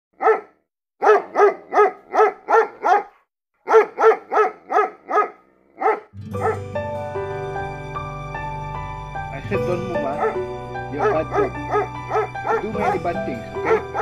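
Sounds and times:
dog barking: 0.2 - 6.6, 10.1 - 10.4, 11.0 - 14.0
music: 6.2 - 14.0.

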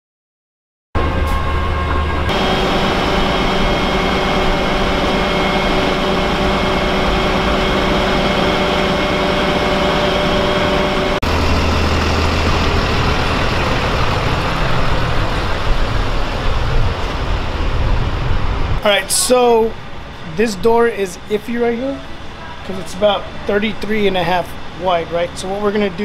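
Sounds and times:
truck engine idling: 2.0 - 17.7.

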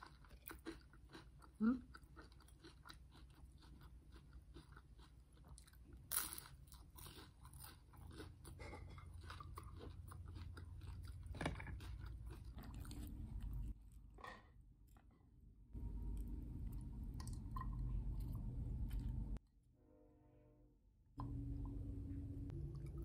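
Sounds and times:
chewing crunchy food: 0.0 - 13.8
low background hum: 0.0 - 23.0.

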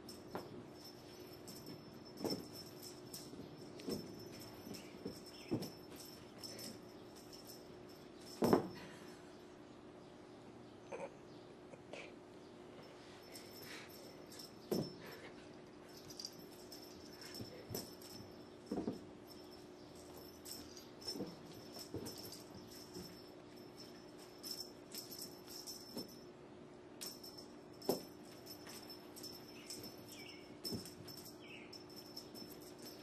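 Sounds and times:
steady low hum: 0.0 - 33.0
kittens pouncing on carpet: 0.3 - 7.6, 13.4 - 26.2, 27.8 - 31.3.

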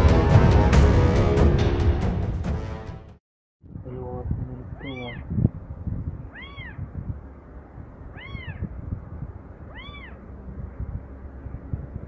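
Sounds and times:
kitten meowing: 4.7 - 5.3, 6.3 - 6.9, 8.1 - 8.7, 9.7 - 10.2.

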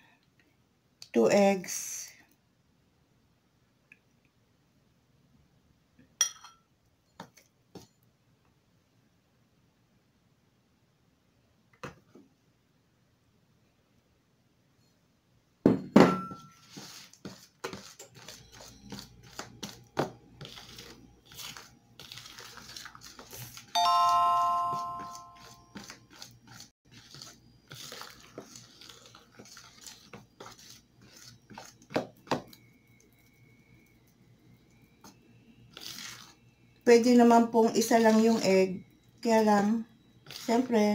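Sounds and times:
spoon clinking against bowl: 6.2 - 6.7
chime-like ringing tone: 23.8 - 25.8.

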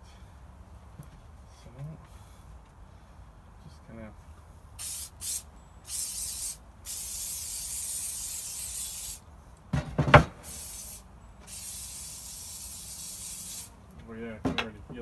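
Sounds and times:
aerosol can spraying: 4.8 - 9.2, 10.4 - 13.7.

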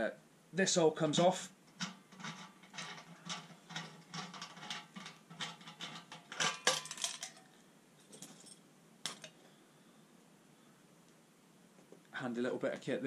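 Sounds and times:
metal fittings clicking and clinking: 1.7 - 9.4.

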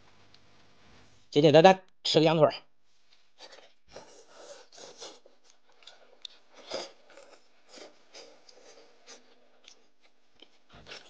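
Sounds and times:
person biting and chewing meat: 3.5 - 11.0.

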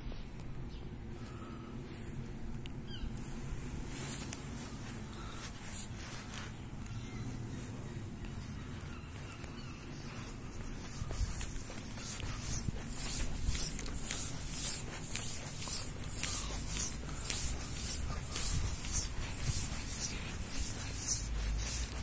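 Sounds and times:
footsteps on pavement: 3.2 - 22.0.

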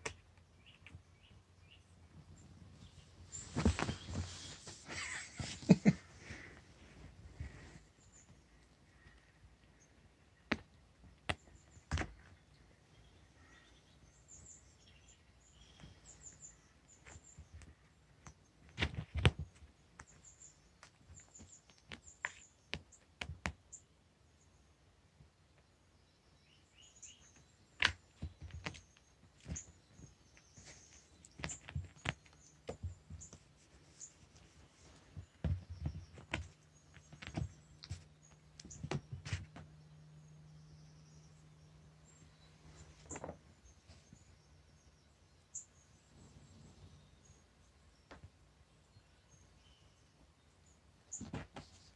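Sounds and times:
paws and toy thumping on carpet: 35.0 - 39.7.

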